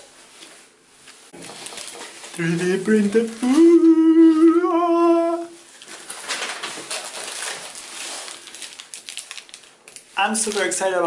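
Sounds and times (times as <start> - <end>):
plastic bag crinkling: 1.4 - 11.0
person humming: 2.4 - 5.6.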